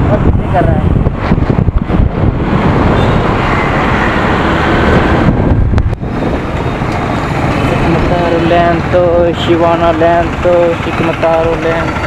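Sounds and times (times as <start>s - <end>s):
road traffic: 0.0s - 12.0s
wind buffeting microphone: 0.0s - 12.0s
scooter engine running: 6.4s - 12.0s.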